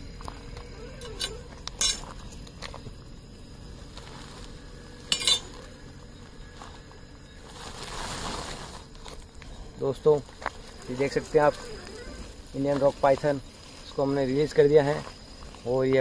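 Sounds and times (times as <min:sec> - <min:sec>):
metal hook clinking on gravel: 0:00.1 - 0:06.2
plastic sack handled: 0:07.5 - 0:09.2.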